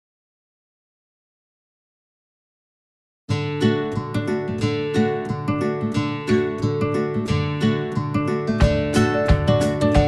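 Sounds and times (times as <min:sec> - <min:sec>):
acoustic guitar picking and strumming: 0:03.3 - 0:10.0.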